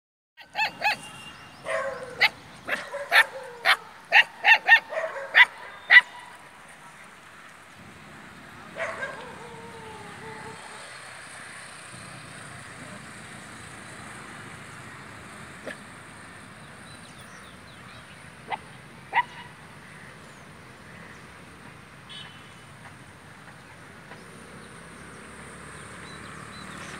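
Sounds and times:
puppies yipping: 0:00.4 - 0:06.3.

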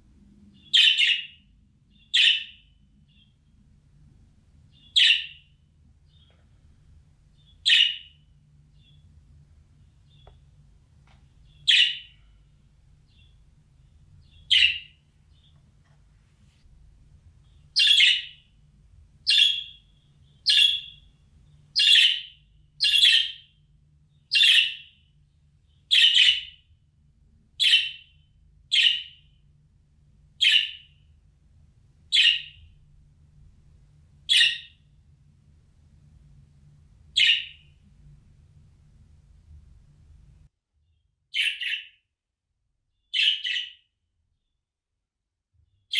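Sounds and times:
budgerigar contact calls: 0:34.3 - 0:34.7, 0:37.2 - 0:37.6.

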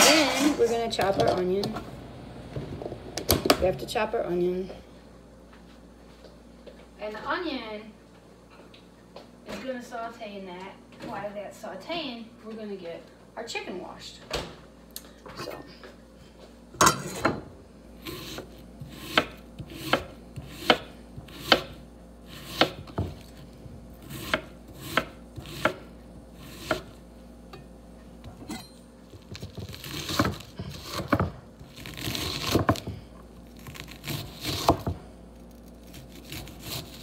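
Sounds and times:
knife chopping on wooden board: 0:18.0 - 0:23.4, 0:24.0 - 0:27.0, 0:29.2 - 0:33.0, 0:33.6 - 0:35.0, 0:35.9 - 0:37.0.

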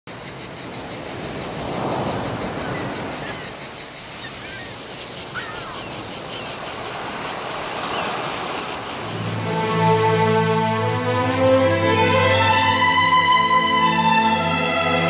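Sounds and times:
insects chirping: 0:00.1 - 0:15.0
faint bird calls: 0:02.4 - 0:06.6.

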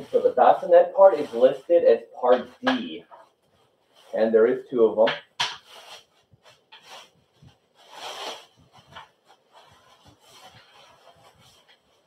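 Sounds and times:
plastic wrap crinkling: 0:05.4 - 0:12.0.

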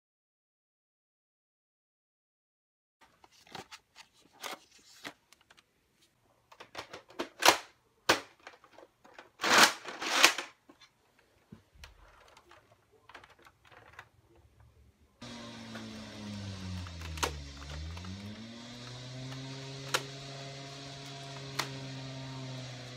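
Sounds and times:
plastic clicks and scrapes: 0:06.5 - 0:14.6.

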